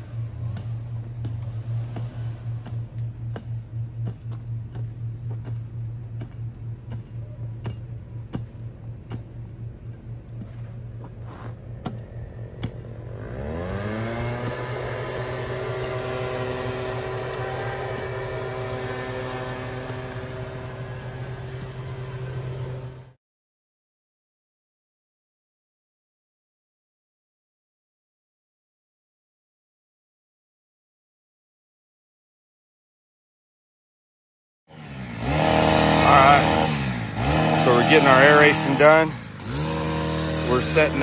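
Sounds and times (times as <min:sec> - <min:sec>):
machine humming: 0:00.0 - 0:23.2
motor whine: 0:10.4 - 0:23.2.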